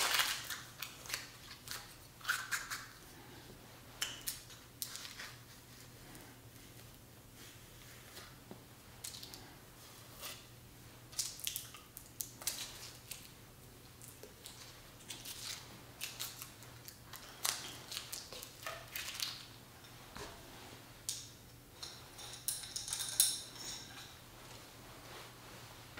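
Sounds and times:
silk handkerchiefs rustling: 24.1 - 25.9.

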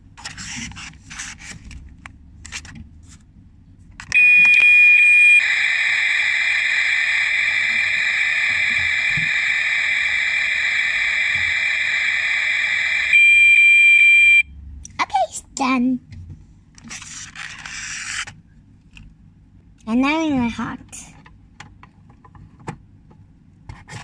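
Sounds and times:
toy stove high beep: 4.1 - 14.4
electronic sizzling hiss: 5.0 - 13.7.

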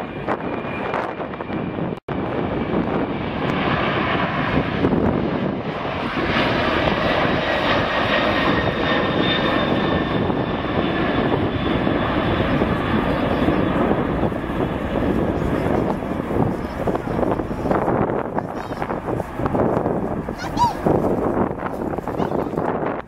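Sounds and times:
jet engines at takeoff: 0.0 - 23.0.

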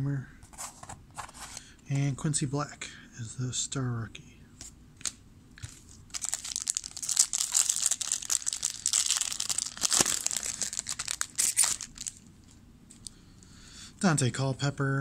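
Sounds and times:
foil wrapper tearing and crinkling: 6.1 - 12.3.

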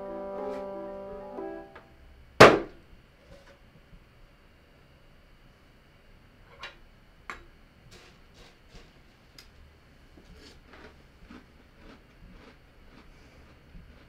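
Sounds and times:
person chewing cereal crunching: 10.2 - 14.0.

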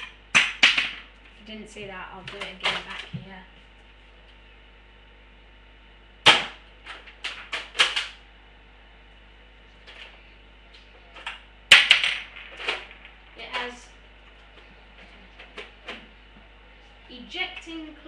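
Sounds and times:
toy blaster loud snap: 6.2 - 6.6.

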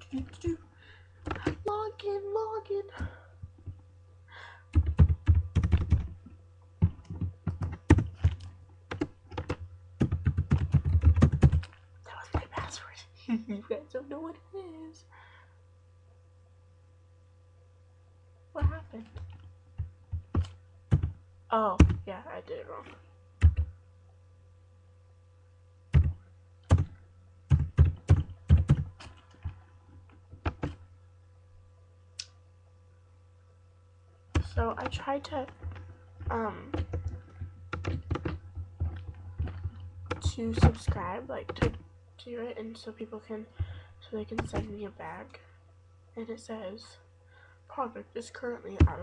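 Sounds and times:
fast typing on keyboard: 4.7 - 6.2, 6.8 - 11.7, 20.1 - 21.1, 23.4 - 23.7, 25.9 - 26.9, 27.5 - 29.4, 30.4 - 30.8, 36.7 - 41.8.

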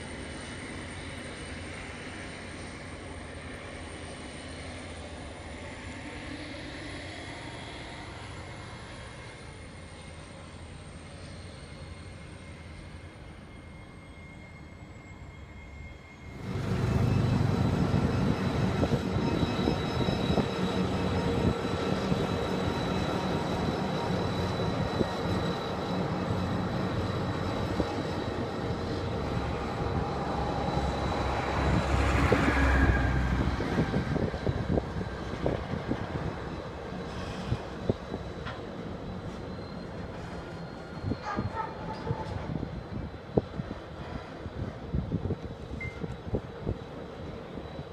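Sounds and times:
distant locomotive hum: 0.0 - 47.9
locomotive rumbling past: 16.3 - 47.6.

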